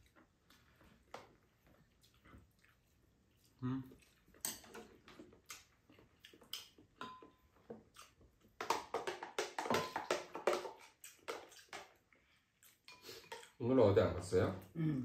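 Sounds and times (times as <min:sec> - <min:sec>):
utensils clattering against bowls: 0:08.7 - 0:11.9.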